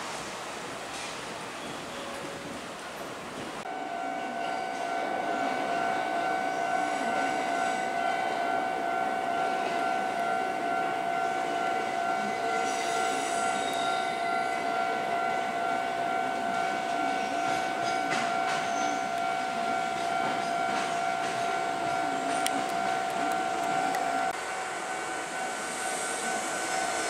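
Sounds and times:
electric train rumble: 0.0 - 27.0
steady high tone: 3.7 - 27.0.

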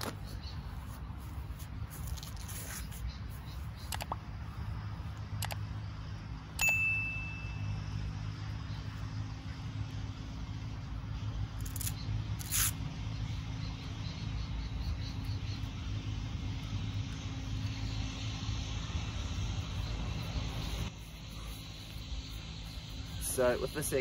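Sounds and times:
short high tone: 6.6 - 7.8.

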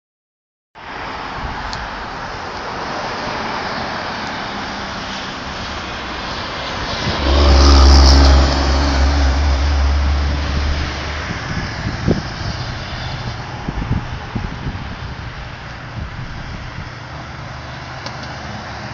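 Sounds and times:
road traffic passing: 0.8 - 18.9
motorhome engine hum: 4.1 - 18.9.

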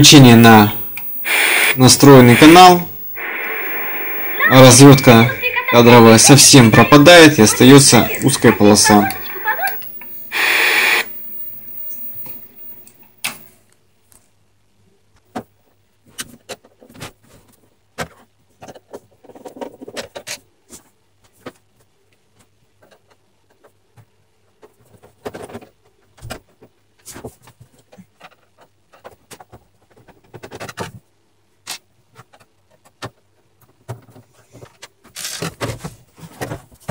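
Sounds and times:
television static hiss: 0.0 - 13.5.

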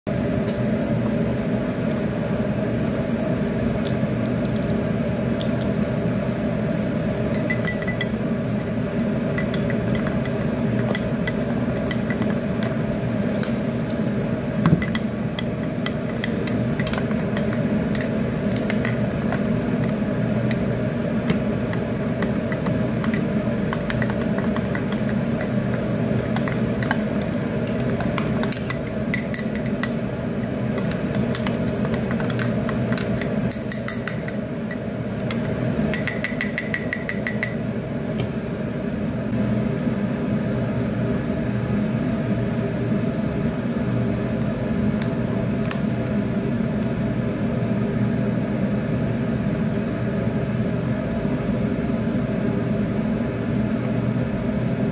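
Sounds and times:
steady low hum: 0.1 - 54.9
spoon clinking in glass: 7.3 - 12.9, 14.7 - 19.1, 21.7 - 30.0, 30.8 - 37.6.

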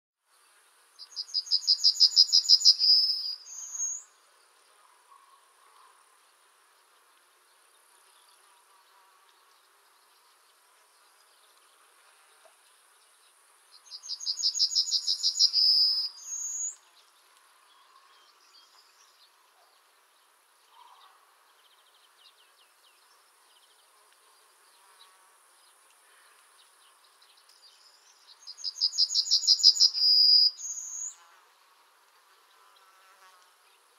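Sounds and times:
yellowhammer singing: 1.0 - 4.2, 13.7 - 17.1, 27.0 - 31.2.

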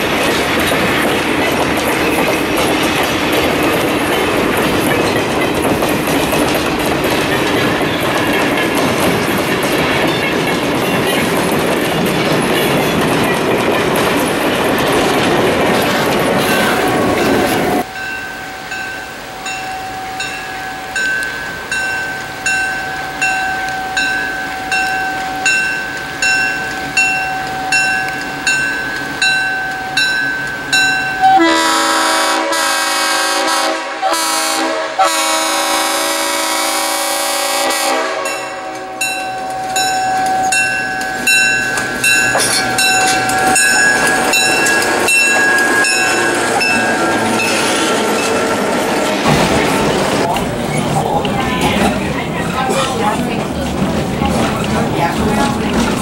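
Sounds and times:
crossing bell dinging: 0.0 - 14.6, 16.2 - 33.0, 36.4 - 56.0
train wheel clatter: 0.0 - 18.1, 18.7 - 32.2, 35.2 - 56.0
train passing: 0.0 - 56.0
locomotive horn blasts: 31.2 - 39.2.

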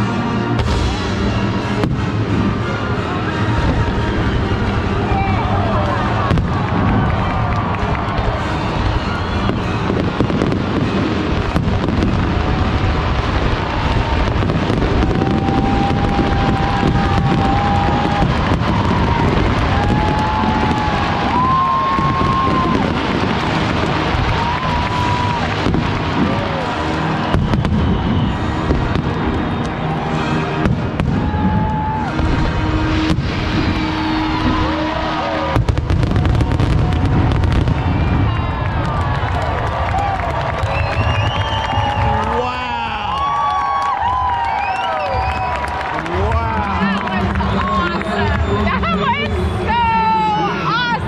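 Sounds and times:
low rumble: 0.0 - 42.3
firework bangs and crackles: 0.0 - 51.0
sharp firework bangs: 9.4 - 29.7.

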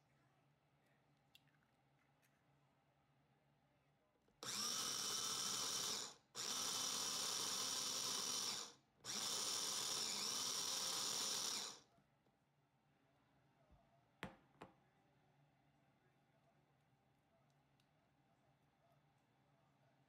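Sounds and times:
food chopper motor whining: 4.4 - 11.8.

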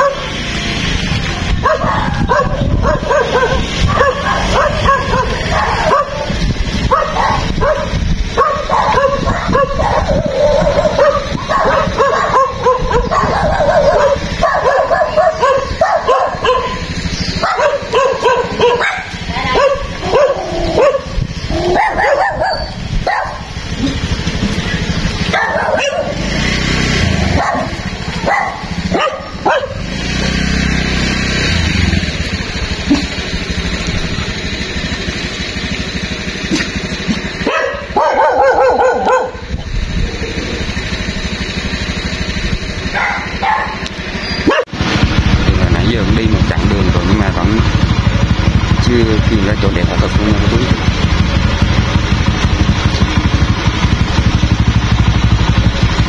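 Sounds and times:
dogs yipping and whining: 0.0 - 0.3, 1.2 - 26.3, 27.0 - 29.8, 36.5 - 39.5, 42.8 - 44.7
dogs barking: 0.0 - 45.1, 46.0 - 56.0.

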